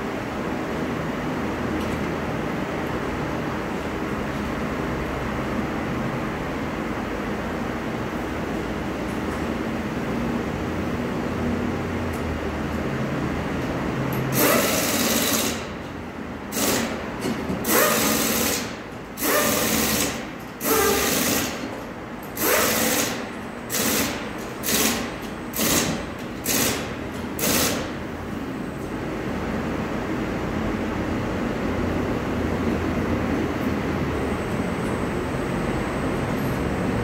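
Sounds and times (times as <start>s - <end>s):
workshop hum: 0.0s - 37.0s
tyre changing machine bursts: 14.3s - 15.8s, 16.5s - 28.0s.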